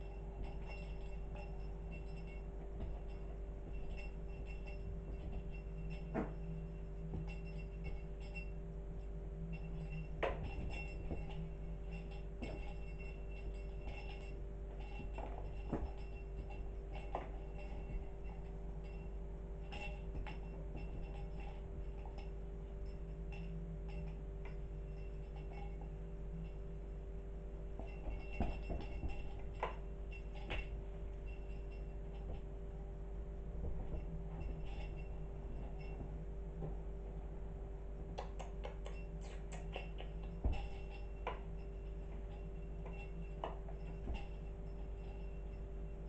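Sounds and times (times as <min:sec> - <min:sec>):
steady low hum: 0:00.0 - 0:46.0
light ticks and clicks: 0:38.1 - 0:46.0.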